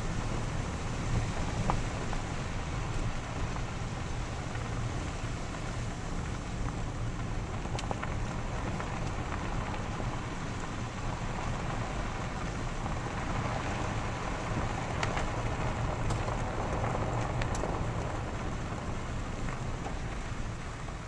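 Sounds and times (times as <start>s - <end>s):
car engine and tyre noise: 0.0s - 21.0s
faint ticks: 16.0s - 18.1s.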